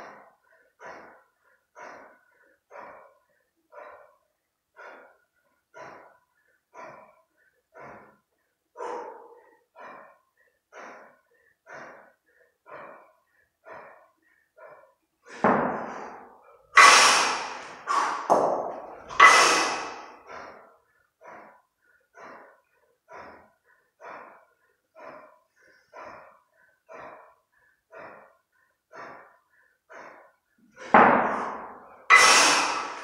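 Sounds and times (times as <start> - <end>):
sharp rhythmic exhales: 0.0 - 33.0
harsh straining exhales: 16.8 - 18.3, 18.9 - 20.6, 30.9 - 33.0.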